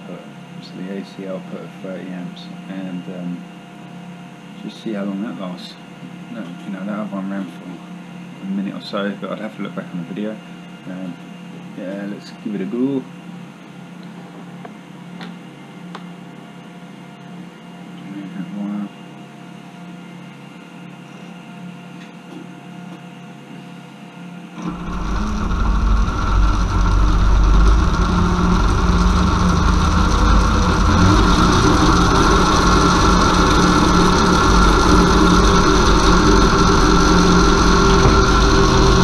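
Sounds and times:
faint hum: 0:22.9 - 0:39.0
electric motor spinning up: 0:24.6 - 0:39.0.

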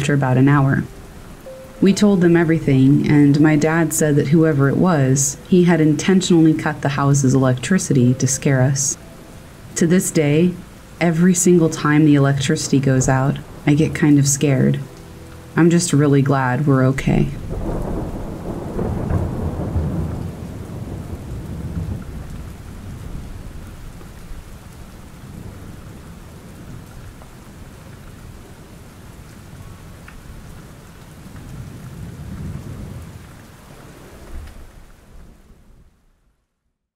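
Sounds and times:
rain: 0:00.0 - 0:36.9
rolling thunder: 0:15.6 - 0:36.0.

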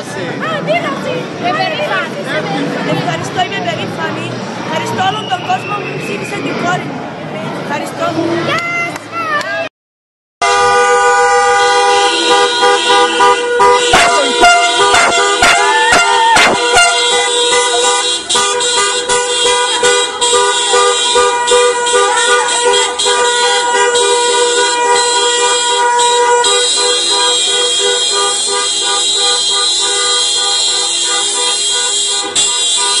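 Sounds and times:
car horns honking: 0:10.4 - 0:33.0.

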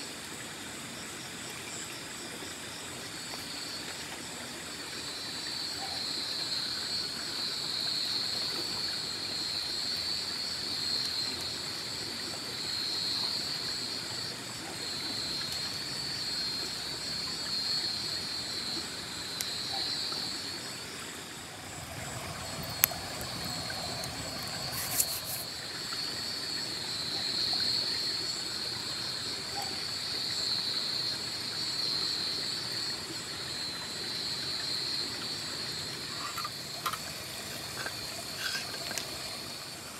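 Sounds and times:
night insects trilling: 0:00.0 - 0:39.9
campfire crackles: 0:10.8 - 0:27.6, 0:35.3 - 0:39.7
river rushing: 0:21.3 - 0:26.0.

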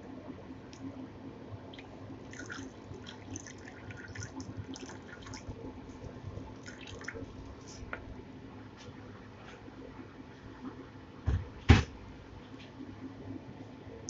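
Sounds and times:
water pouring into a bowl: 0:01.8 - 0:07.9.

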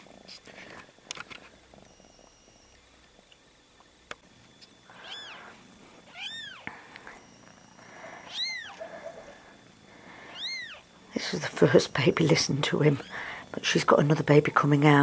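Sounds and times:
kitten mewing: 0:04.9 - 0:06.7, 0:08.2 - 0:09.4, 0:10.3 - 0:10.9.

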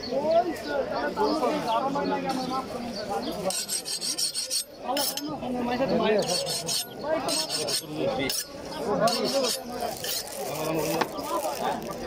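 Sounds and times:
cleaver rasping on sharpening steel: 0:03.5 - 0:05.3, 0:06.2 - 0:10.3.

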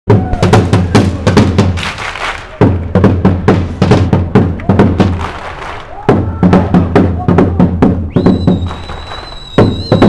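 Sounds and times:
drum beaten in quick rhythm: 0:00.1 - 0:08.9, 0:09.5 - 0:10.0.

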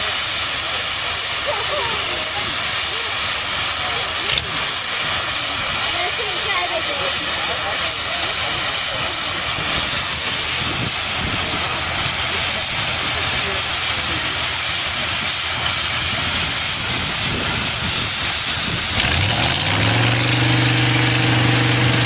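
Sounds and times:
steam engine hissing: 0:00.0 - 0:22.0
low engine note: 0:01.8 - 0:22.0.

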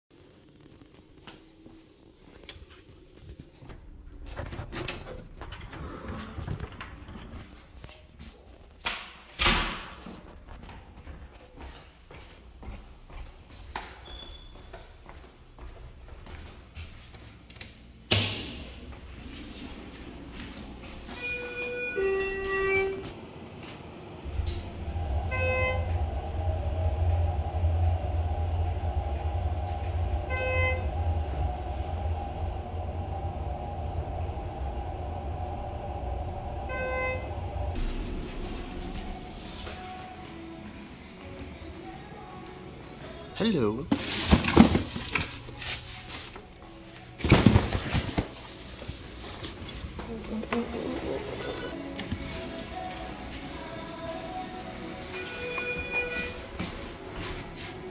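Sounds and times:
elevator rumble and hum: 0:00.9 - 0:57.9
faint background music: 0:39.2 - 0:57.9.

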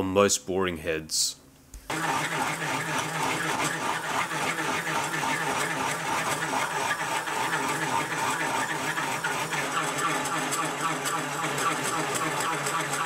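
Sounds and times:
milling machine spindle running: 0:01.9 - 0:13.0.

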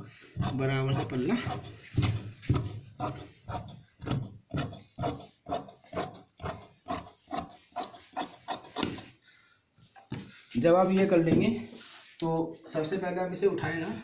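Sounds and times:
shears cutting fabric: 0:00.0 - 0:09.1.

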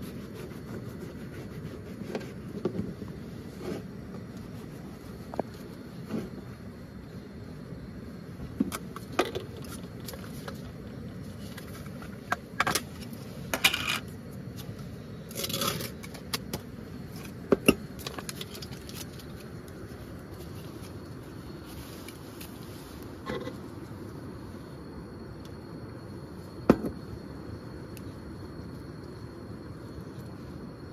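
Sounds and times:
steady low rumble: 0:00.0 - 0:30.9.

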